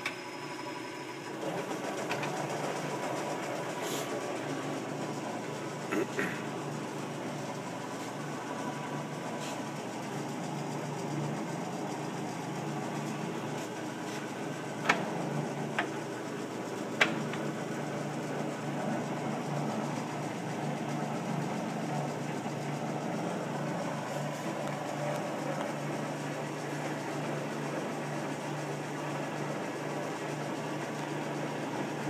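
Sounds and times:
lathe running: 0.0 - 32.0
lathe control clicks: 14.8 - 16.0.

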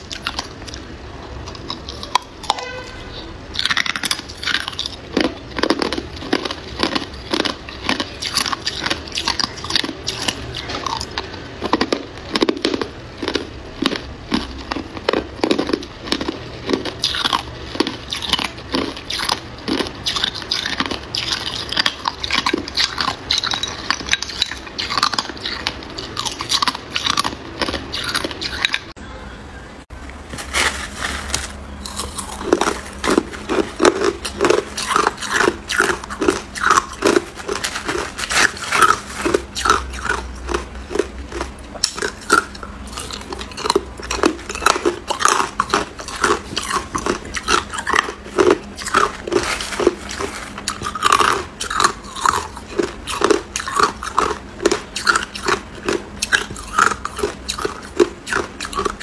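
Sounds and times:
ice cubes crunched by teeth: 31.0 - 59.0.

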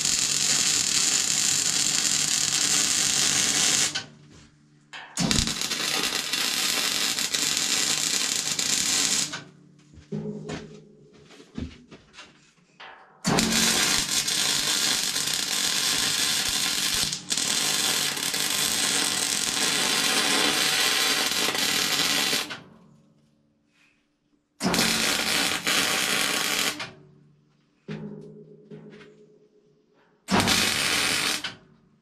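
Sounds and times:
welding arc crackling hiss: 0.0 - 4.0, 5.2 - 9.4, 13.3 - 22.6, 24.6 - 26.9, 30.3 - 31.6.

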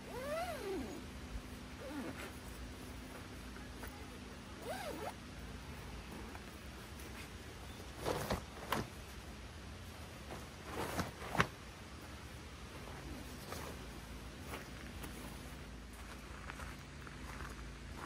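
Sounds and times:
synthetic fabric rustling: 0.2 - 15.4.

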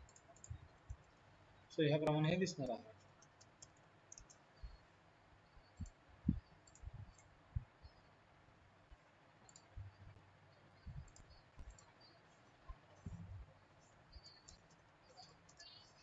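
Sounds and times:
computer mouse clicks: 0.0 - 1.3, 2.0 - 4.8, 5.6 - 7.4, 8.9 - 10.3, 10.9 - 12.0, 12.9 - 15.8
keyboard keys ticking: 0.0 - 4.9, 5.5 - 8.1, 8.9 - 16.0
soft low thumps: 5.8 - 7.9, 10.9 - 11.8, 13.0 - 13.5.

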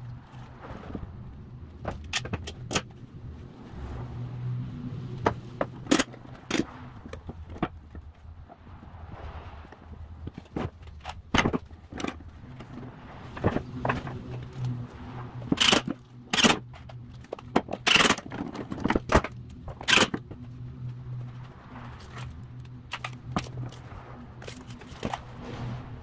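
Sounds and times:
low steady hum: 0.0 - 26.0
metal clamps clacking and rattling: 15.5 - 20.3.

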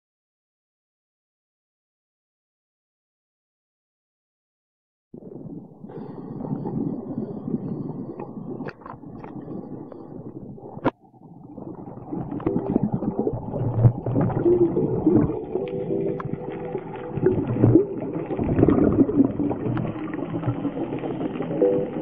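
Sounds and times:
exhaust bubbles gurgling: 5.2 - 22.0
scuba regulator breathing underwater: 5.3 - 10.8.

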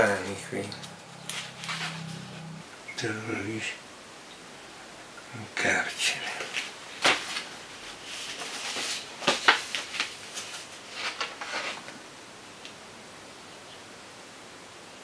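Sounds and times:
paper rustling: 6.5 - 11.9.

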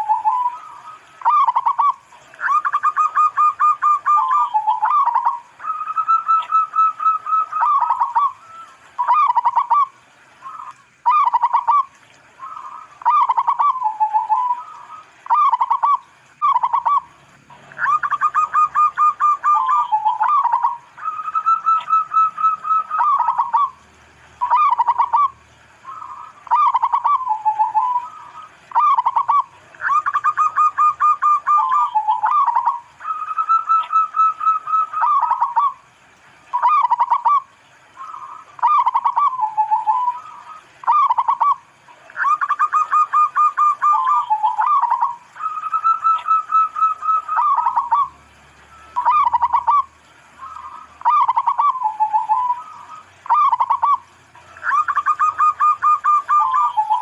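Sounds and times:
dove cooing: 0.0 - 35.8, 36.5 - 48.1, 48.7 - 57.0.

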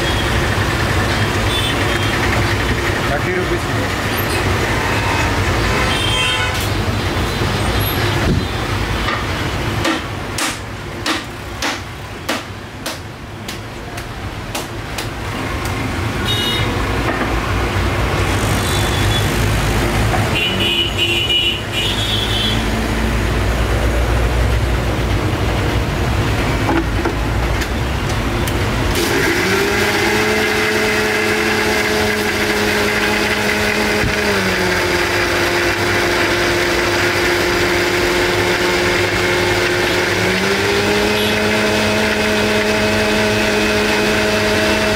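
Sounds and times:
electric blender running: 28.9 - 44.9.

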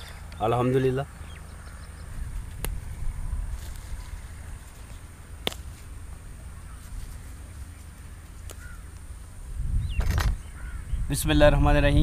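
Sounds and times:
bird chirps: 0.0 - 2.4
wind rumble on microphone: 1.4 - 7.7, 8.6 - 12.0.

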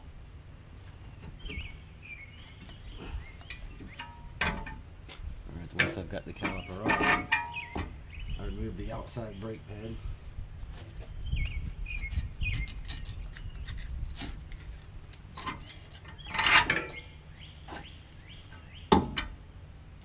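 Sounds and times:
birds chirping faintly: 0.6 - 4.7, 5.4 - 19.1
screwdriver scraping metal: 12.0 - 14.7.

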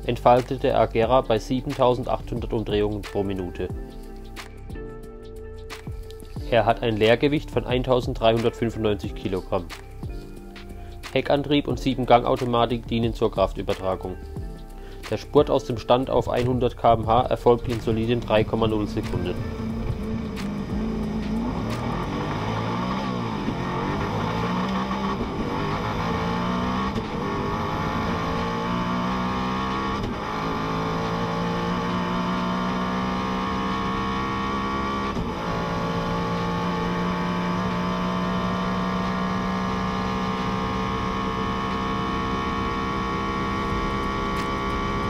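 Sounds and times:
car engine accelerating: 15.6 - 45.0.

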